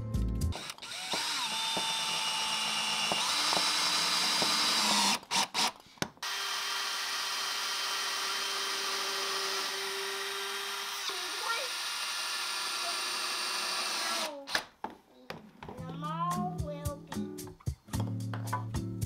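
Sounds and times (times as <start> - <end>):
cordless drill drilling into wood: 0.6 - 14.7.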